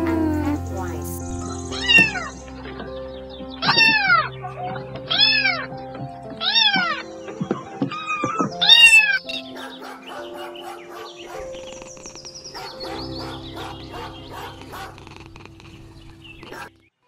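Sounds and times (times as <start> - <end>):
soft background music: 0.0 - 17.0
kitten meowing: 1.7 - 2.3, 3.6 - 4.3, 5.1 - 5.7, 6.4 - 7.0, 8.0 - 9.4.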